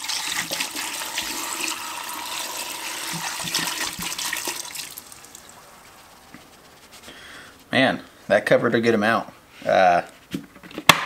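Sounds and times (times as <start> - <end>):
liquid pouring and splashing: 0.0 - 5.9.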